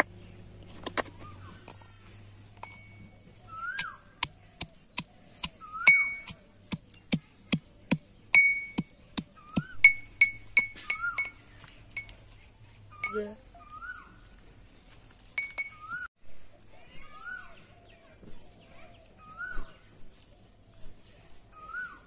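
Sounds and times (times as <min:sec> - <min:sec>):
pestle clinking in mortar: 0:03.8 - 0:11.4.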